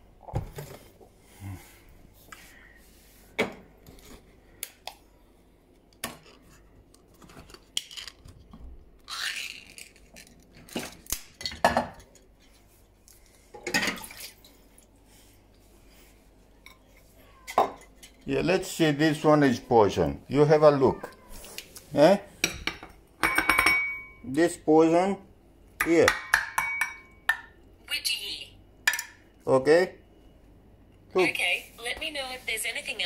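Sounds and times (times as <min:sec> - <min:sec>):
dishes and tins clinking: 0:16.6 - 0:18.3, 0:22.4 - 0:24.2, 0:26.1 - 0:27.5.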